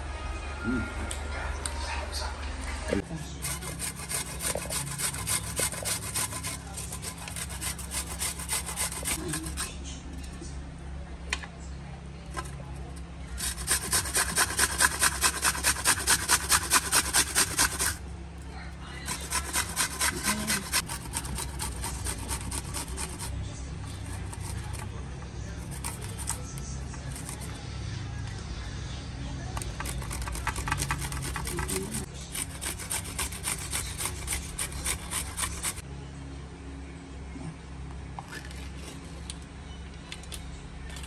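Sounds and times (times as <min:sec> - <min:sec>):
onion grated on metal grater: 0:03.4 - 0:09.8, 0:13.4 - 0:18.0, 0:19.0 - 0:23.3, 0:23.9 - 0:24.9, 0:25.6 - 0:27.6, 0:29.6 - 0:35.8.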